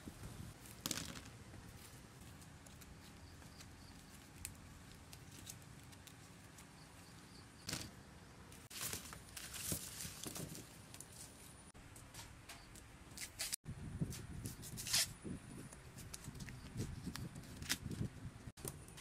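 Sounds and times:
vegetables rustling in baskets: 8.5s - 11.6s.

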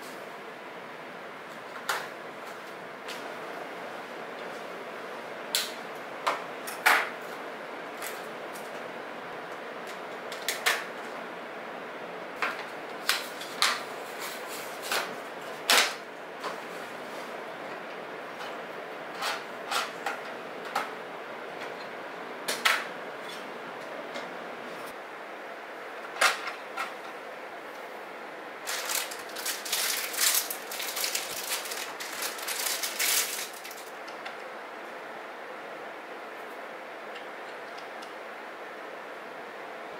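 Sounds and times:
plastic packs clicking on wood: 28.7s - 33.9s.

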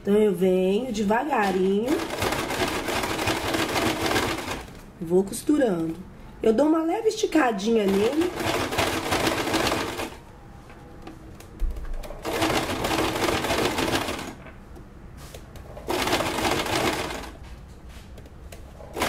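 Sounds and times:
sewing machine stitching: 1.8s - 4.8s, 7.9s - 10.2s, 12.0s - 14.4s, 15.8s - 17.4s.

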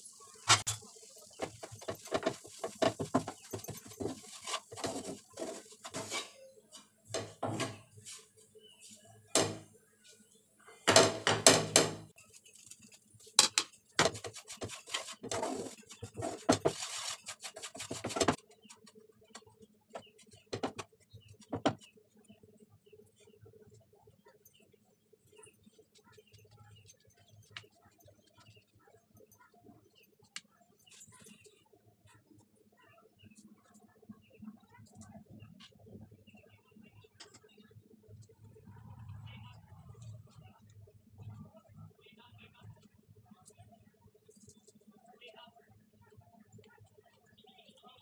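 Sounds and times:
wooden spatula scraping frying pan: 0.5s - 8.3s, 14.0s - 18.4s.

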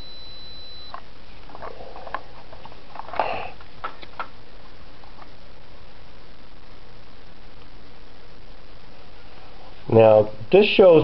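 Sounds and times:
multimeter continuity beep: 0.0s - 1.1s.

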